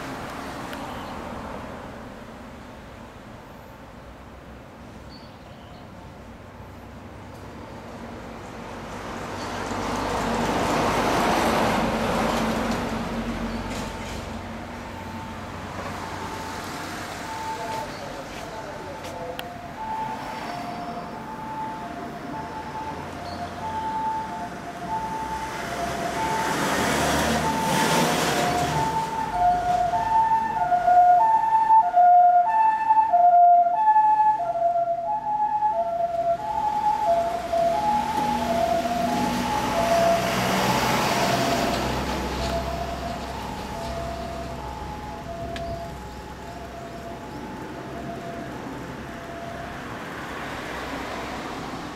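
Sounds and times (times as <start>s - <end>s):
road vehicle passing: 0.0s - 5.0s, 5.9s - 51.9s
two-tone ambulance siren: 14.9s - 17.9s, 18.8s - 50.5s.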